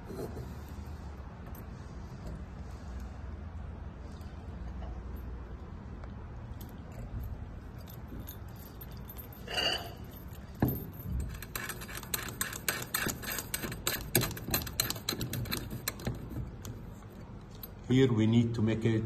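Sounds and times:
metal lamp fittings jangling: 0:06.5 - 0:16.7.

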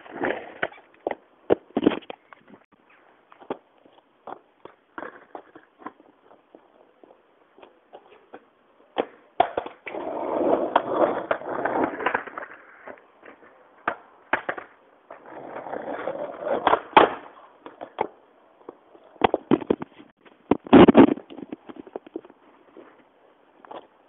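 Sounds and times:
skateboard wheels rolling on concrete: 0:00.0 - 0:24.0
skateboard deck clacking on ground: 0:04.2 - 0:15.3, 0:15.9 - 0:22.4.

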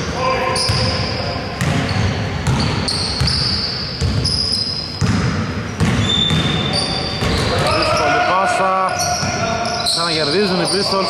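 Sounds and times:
sneakers squeaking: 0:00.0 - 0:11.0
basketball bouncing: 0:00.6 - 0:01.0, 0:01.6 - 0:06.6, 0:07.2 - 0:07.6.

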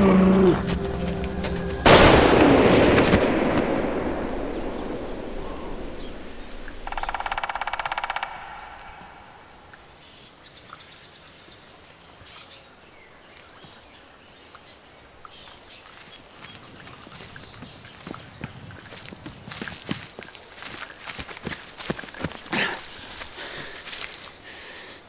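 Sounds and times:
gunshot echoing: 0:01.9 - 0:05.8.

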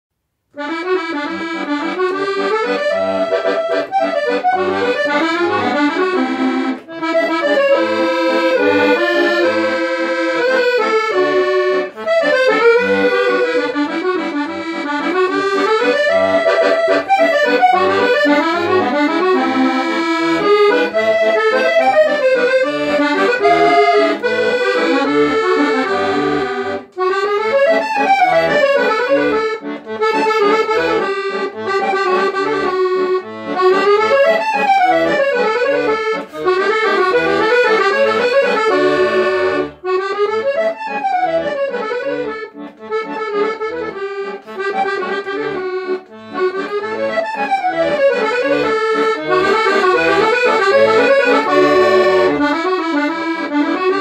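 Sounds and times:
piano accordion waltz: 0:00.6 - 0:54.0.

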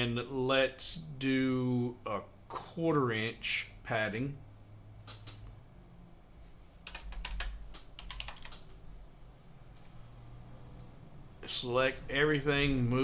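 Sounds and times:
computer keyboard typing: 0:06.8 - 0:08.8.

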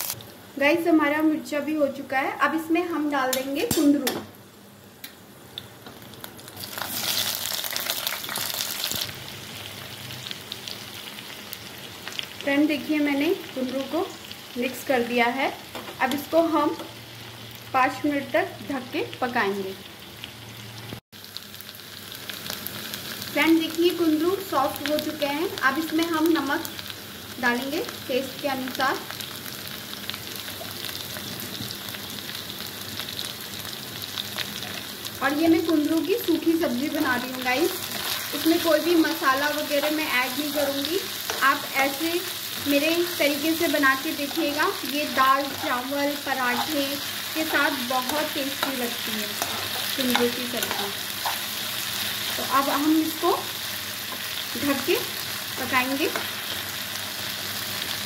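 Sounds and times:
vegetables sizzling in hot oil: 0:00.0 - 0:58.0
oil crackling: 0:06.1 - 0:09.2.

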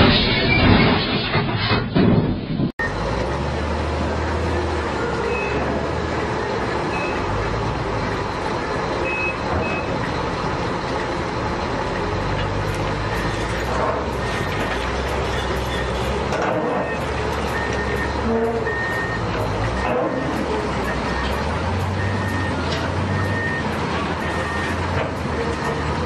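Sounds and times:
heavy diesel engines running: 0:00.0 - 0:26.0
high warning beeps: 0:09.0 - 0:09.9, 0:13.0 - 0:16.1, 0:16.8 - 0:24.9.

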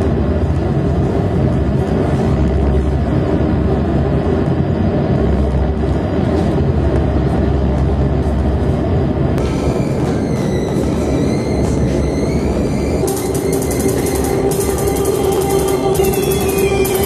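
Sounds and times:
low electronic synthesizer drone: 0:00.0 - 0:17.0.

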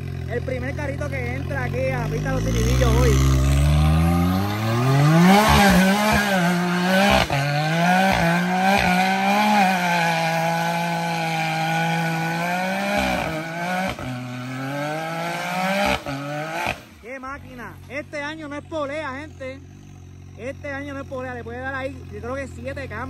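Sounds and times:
utility vehicle engine revving: 0:00.0 - 0:23.0.

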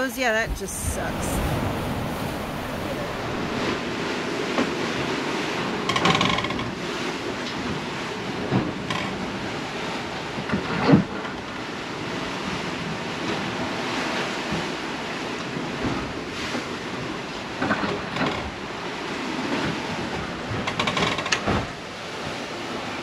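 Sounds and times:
wind and rough seas rushing: 0:00.0 - 0:23.0.

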